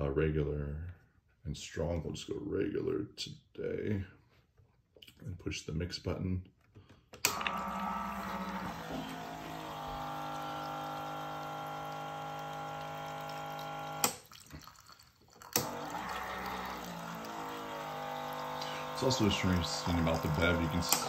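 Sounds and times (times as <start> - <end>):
cocktail maker pump humming: 7.3 - 21.0
liquid pouring into iced glass: 9.8 - 20.8.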